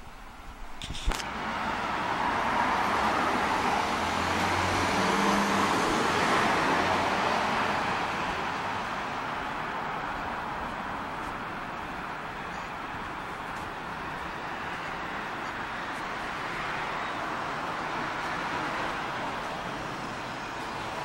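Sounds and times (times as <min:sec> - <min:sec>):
sharp click: 0:00.8 - 0:01.3
motor vehicle passing: 0:01.3 - 0:07.8.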